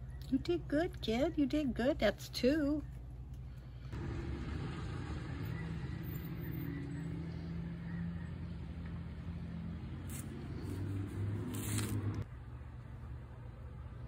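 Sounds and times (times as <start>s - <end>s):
engine humming: 2.8s - 14.0s.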